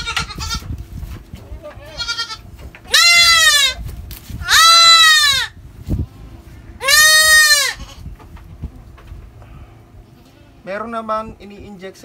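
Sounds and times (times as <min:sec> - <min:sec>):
goat kid bleating: 0:00.0 - 0:00.8, 0:01.4 - 0:06.2, 0:06.8 - 0:08.2.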